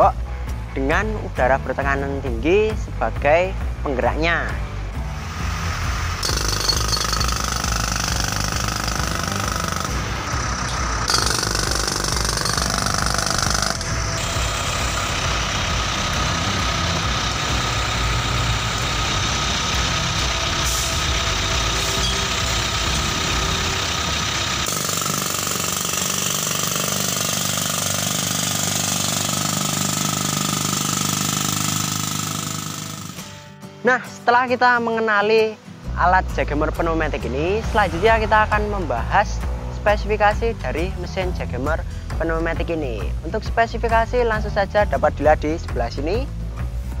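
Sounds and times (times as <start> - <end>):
jackhammer breaking concrete: 6.2 - 33.3.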